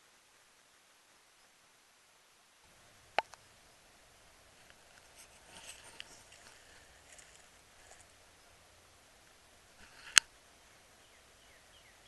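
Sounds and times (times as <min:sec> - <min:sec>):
footsteps on dry leaves: 0:04.8 - 0:08.2.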